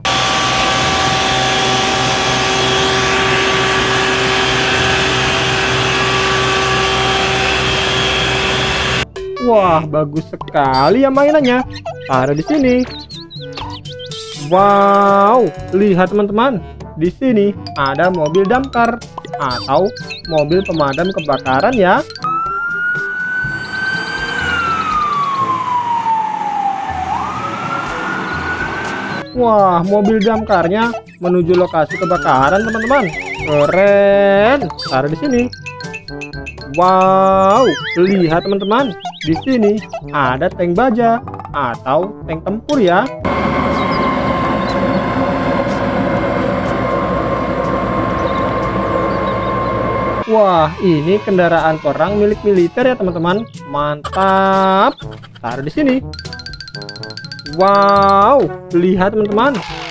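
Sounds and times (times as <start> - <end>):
truck engine hum: 0.0 - 9.1, 10.8 - 15.8, 18.1 - 39.9, 43.2 - 50.3.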